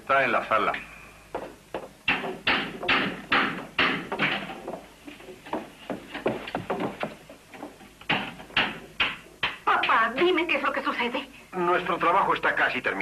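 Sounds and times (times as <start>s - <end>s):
footsteps on hard floor: 1.3s - 2.0s, 4.1s - 8.4s.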